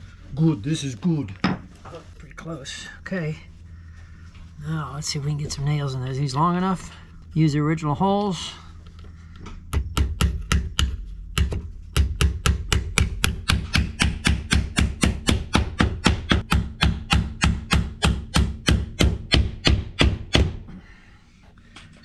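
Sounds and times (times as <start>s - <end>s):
hammer driving nails into wood: 9.7s - 20.6s.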